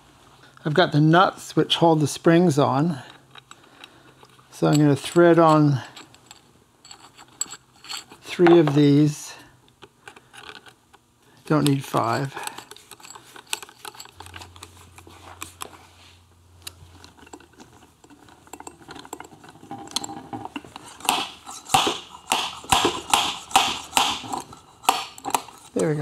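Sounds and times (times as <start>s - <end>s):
metal nuts clicking and rattling: 3.0s - 9.0s, 11.6s - 15.7s, 16.6s - 26.0s.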